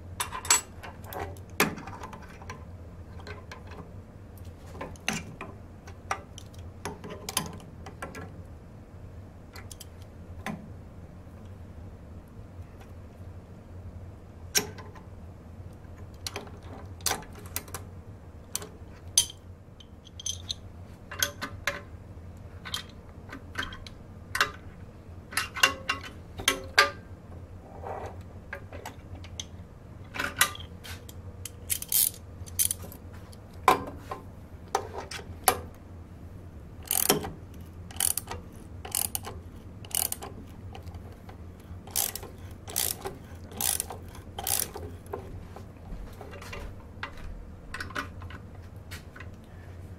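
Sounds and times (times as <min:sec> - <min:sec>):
steady low hum: 0:00.0 - 0:49.9
metal clicks and clinks: 0:18.6 - 0:21.8.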